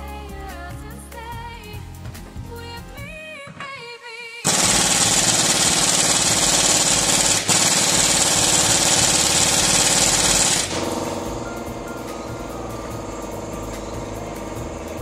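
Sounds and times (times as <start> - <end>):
power tool hiss: 4.5 - 15.0
power tool rapid strokes: 4.5 - 15.0.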